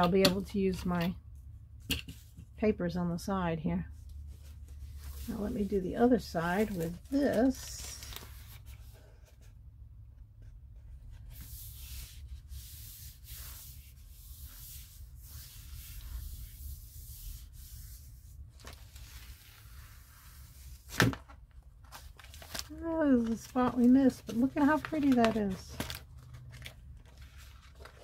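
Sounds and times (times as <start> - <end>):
low steady hum: 0.0 - 28.0
paper pages rustling: 4.2 - 9.5, 18.4 - 28.0.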